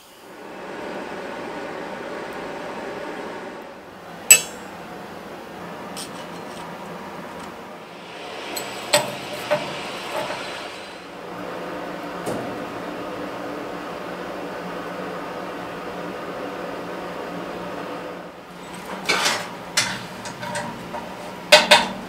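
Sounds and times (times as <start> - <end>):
tools clinking against metal: 4.3 - 4.7, 6.0 - 6.7, 8.5 - 10.4.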